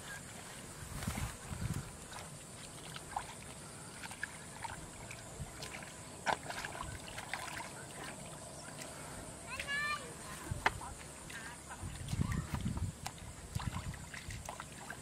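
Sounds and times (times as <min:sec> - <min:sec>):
hands splashing in muddy water: 0:01.0 - 0:09.0, 0:10.7 - 0:15.0
water dripping: 0:10.6 - 0:15.0.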